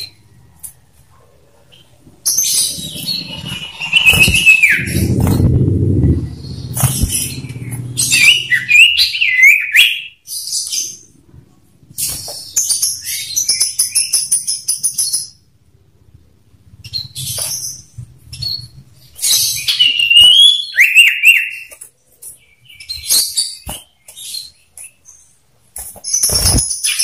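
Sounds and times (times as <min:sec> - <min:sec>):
bird chattering and whistling: 0:01.7 - 0:10.2.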